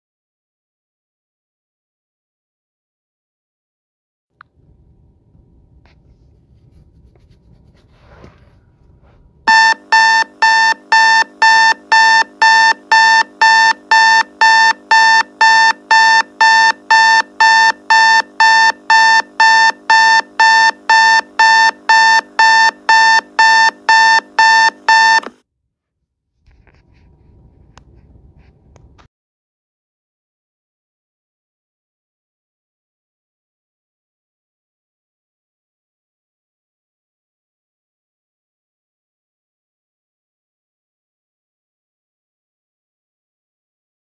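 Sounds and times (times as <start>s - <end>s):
electronic warning chime: 9.5s - 25.3s.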